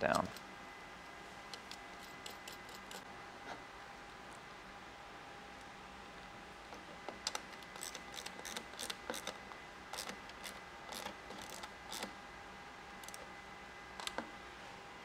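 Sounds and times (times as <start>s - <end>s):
socket ratchet clicking: 7.3s - 12.1s.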